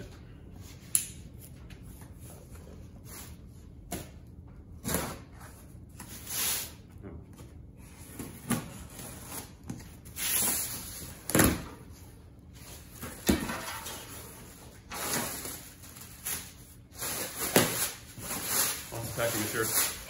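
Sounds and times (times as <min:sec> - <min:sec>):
plastic bags rustling: 0:12.4 - 0:20.0.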